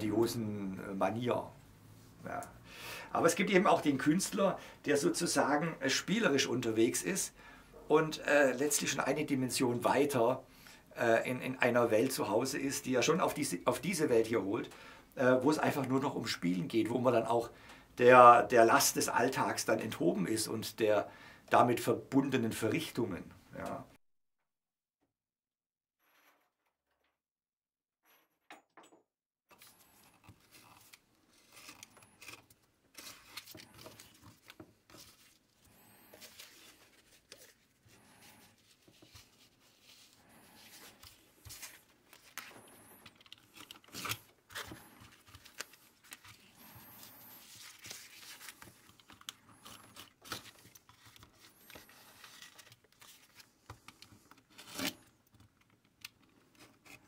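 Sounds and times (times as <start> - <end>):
paper rustling and crinkling: 29.5 - 57.0.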